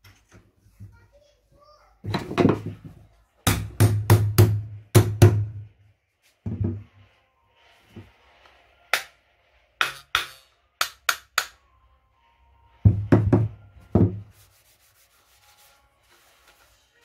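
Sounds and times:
hammer knocking on hand plane: 0:12.9 - 0:14.3.

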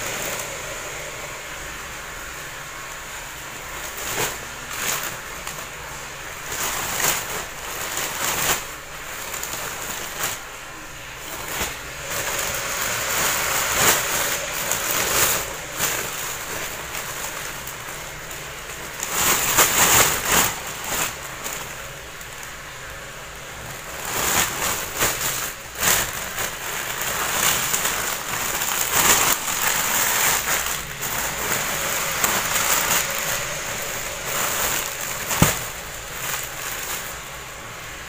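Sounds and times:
plastic bags crinkling: 0:00.0 - 0:38.0.

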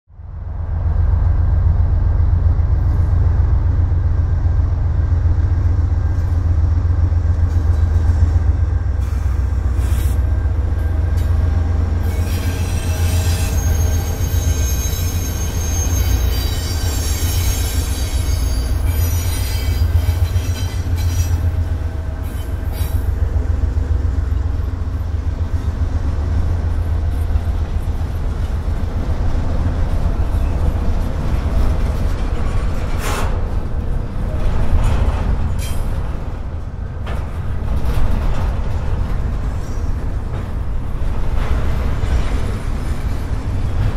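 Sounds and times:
diesel locomotive engine rumble: 0:00.1 - 0:43.9
high-pitched wheel squeal: 0:12.0 - 0:21.4.

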